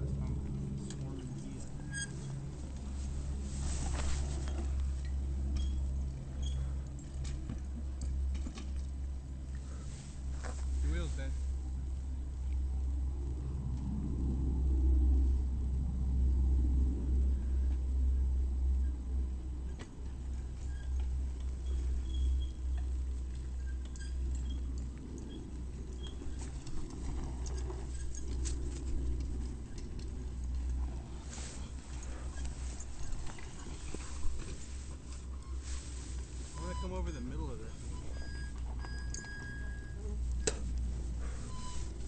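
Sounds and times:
wind rumbling on microphone: 11.4 - 36.5.

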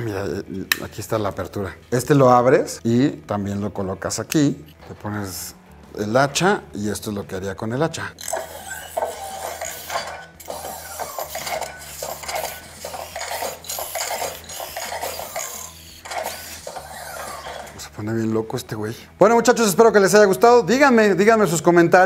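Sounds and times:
plastic parts clacking: 8.2 - 17.8
robot servo motors whirring: 8.2 - 17.8.

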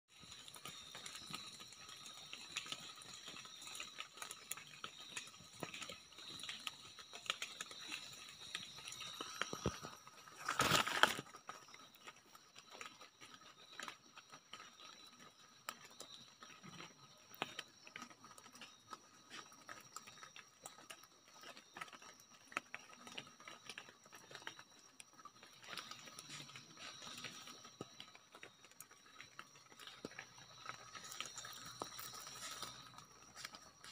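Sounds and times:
rustles among leaves: 0.1 - 12.8, 29.7 - 33.9
night insects chirping: 0.1 - 33.9.

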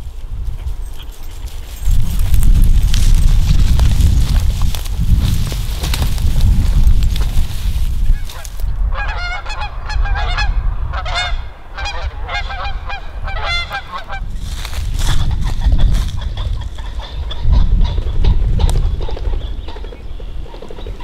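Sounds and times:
geese honking: 8.1 - 20.8.

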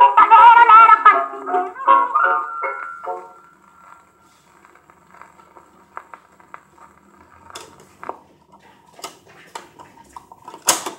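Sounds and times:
vinyl surface noise: 0.0 - 10.9
vinyl clicks and pops: 10.5 - 10.9.

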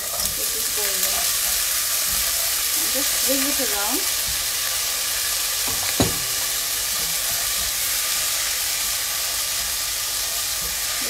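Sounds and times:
peas sizzling in a pan: 0.0 - 11.0
spatula knocking against pan: 5.7 - 6.6.

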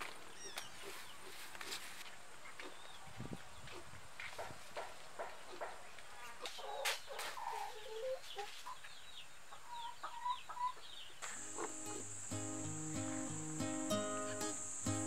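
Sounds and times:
chickens clucking: 6.4 - 15.0
background music: 11.5 - 15.0.

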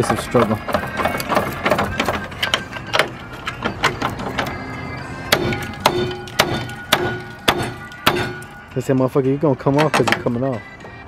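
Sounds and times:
hammer striking steel: 5.3 - 8.6.

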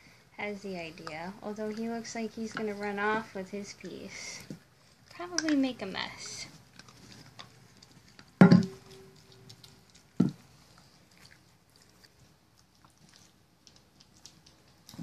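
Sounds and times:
dogs licking and chewing: 0.6 - 15.0
metal bowl clanking on wooden floor: 8.4 - 9.2.

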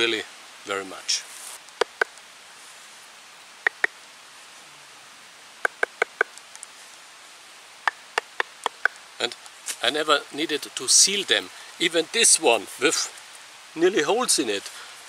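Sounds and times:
wooden baton knocking on log: 1.8 - 2.1, 5.6 - 6.3.

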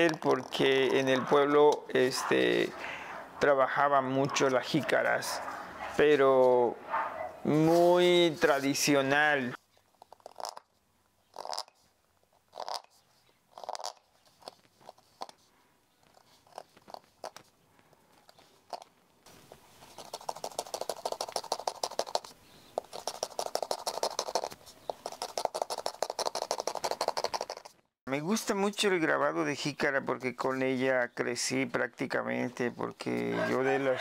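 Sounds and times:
carving tool scratching gourd shell: 0.0 - 1.0, 9.6 - 17.5, 18.2 - 19.0, 19.8 - 27.8.

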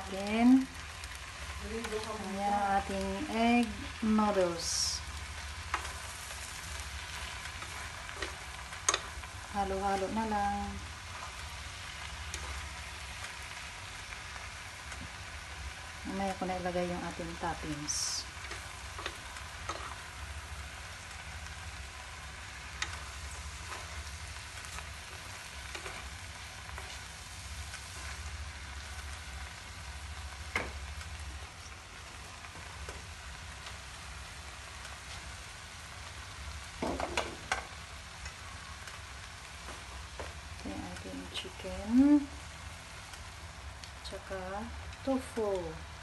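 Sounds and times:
noodles sizzling in frying pan: 0.0 - 46.0
chopsticks clicking on pan: 8.2 - 9.1, 18.5 - 20.0.

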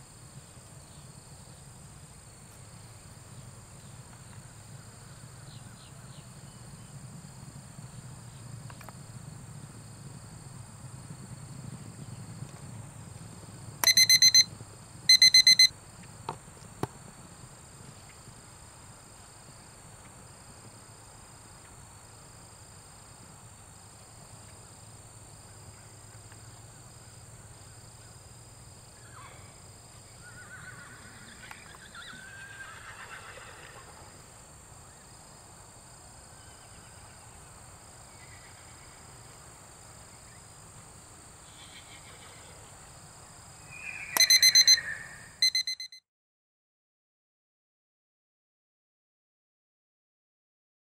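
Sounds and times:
horses whinnying: 30.2 - 34.1.

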